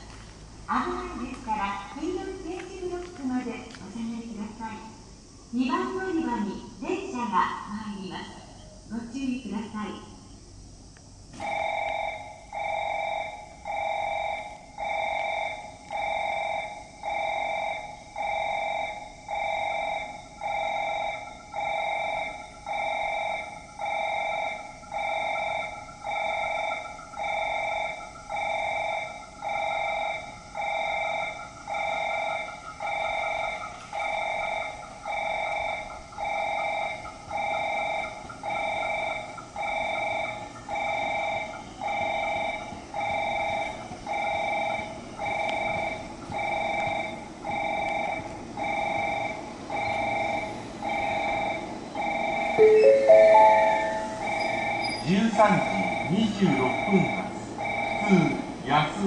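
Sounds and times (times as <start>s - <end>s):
faint wavering whine: 0.0s - 58.2s
pulsing electronic chime: 52.6s - 55.0s.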